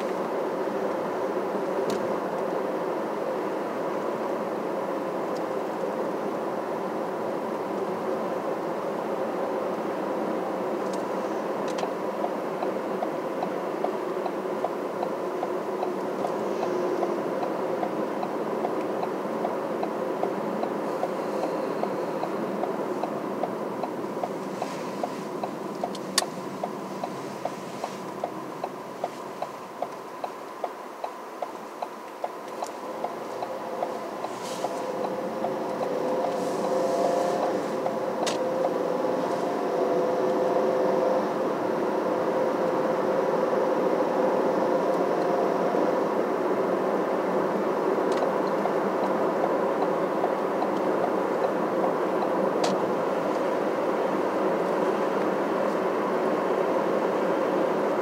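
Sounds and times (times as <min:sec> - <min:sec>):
faint hum: 0:00.0 - 0:58.0
vehicle road and engine noise: 0:00.0 - 0:58.0
regular ticking: 0:25.4 - 0:36.4.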